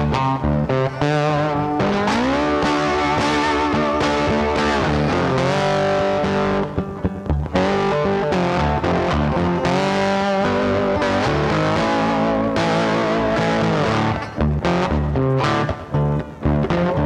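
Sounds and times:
rock music with electric guitar: 0.0 - 17.0.

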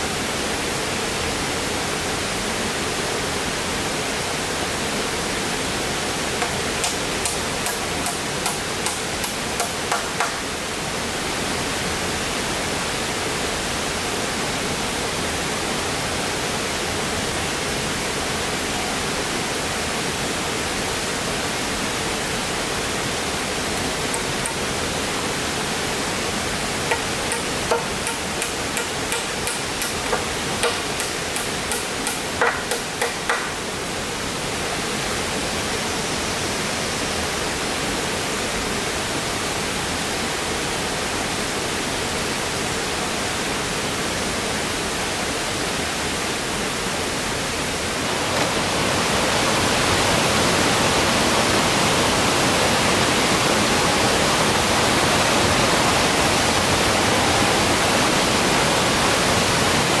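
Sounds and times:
sharp knocks: 6.4 - 10.4, 26.9 - 33.6.

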